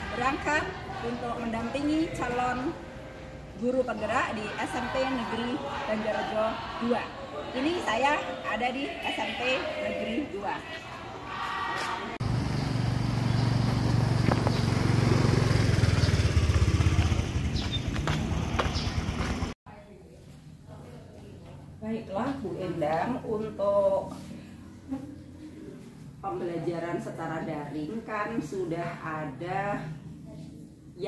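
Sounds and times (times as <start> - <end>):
motor scooter engine running: 12.2 - 19.5.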